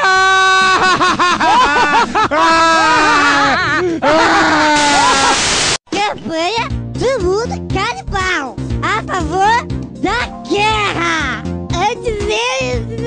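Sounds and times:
cartoon scream of pain: 2.4 - 5.4.

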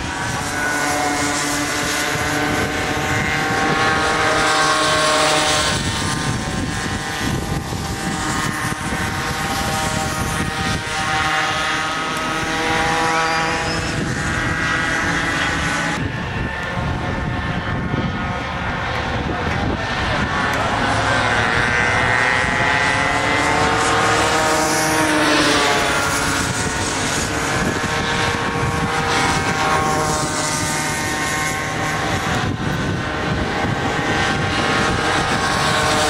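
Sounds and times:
kart engines buzzing: 0.0 - 36.0.

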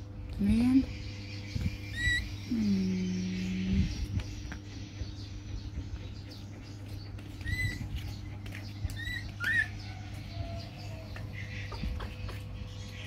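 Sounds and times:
low hum: 0.0 - 13.0
baby monkey squeaking: 1.8 - 2.5, 7.4 - 8.2, 8.8 - 9.8.

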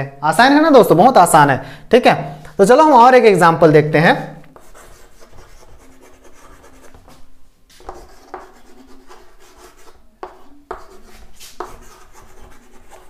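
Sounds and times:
chalk scratching on chalkboard: 4.5 - 7.2, 7.8 - 13.0.

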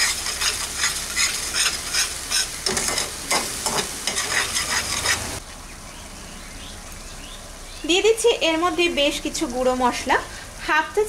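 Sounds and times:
paste sizzling in oil: 0.0 - 5.4
spatula scraping metal pan: 0.0 - 5.4.

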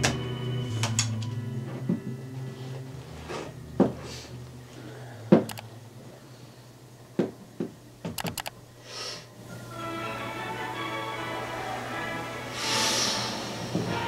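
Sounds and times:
low steady hum: 0.0 - 14.0
sharp clicks and knocks: 7.2 - 8.6.

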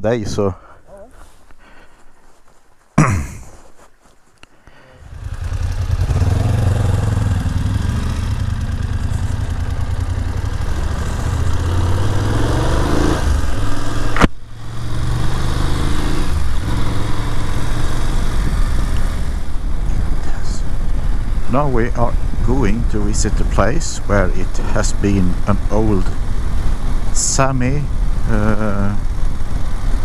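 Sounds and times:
motorcycle engine running: 5.0 - 30.0.

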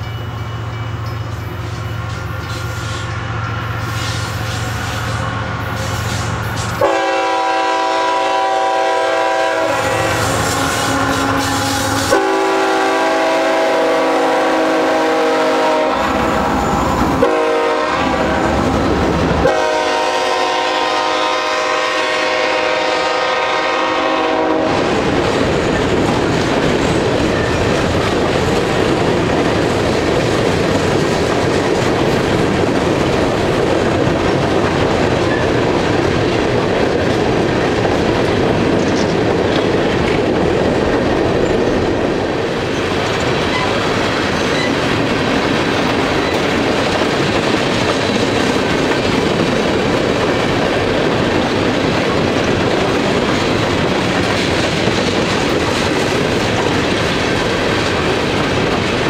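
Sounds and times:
rail cars rumbling and clattering: 0.0 - 59.0
locomotive horn: 2.6 - 18.8, 19.4 - 24.9.

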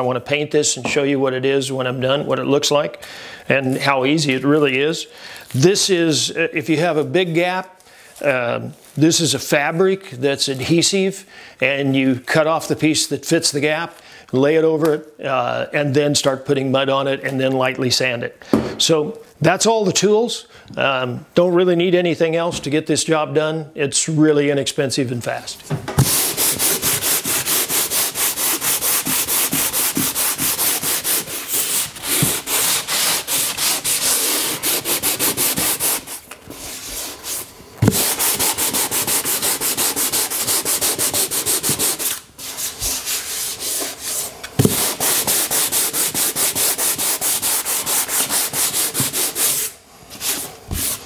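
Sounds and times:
sandpaper rubbing on drywall: 26.0 - 51.0.

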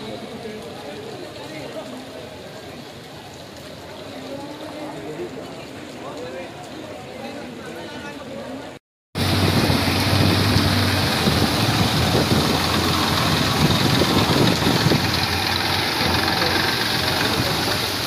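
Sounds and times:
floodwater: 0.0 - 18.0
engine idling: 9.2 - 18.0
heavy rain hissing: 9.2 - 18.0.

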